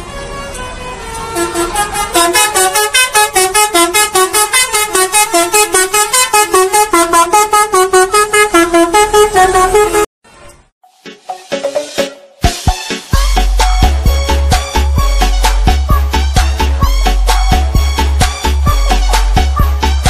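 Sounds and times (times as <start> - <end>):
bus musical horn melody: 0.0 - 10.1, 13.1 - 20.0.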